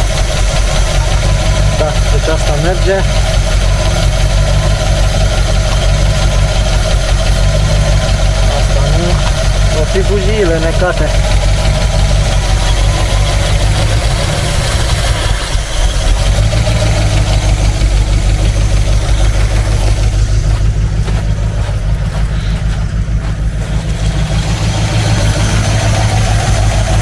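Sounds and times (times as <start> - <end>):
engine idling rough and misfiring: 0.0 - 27.0.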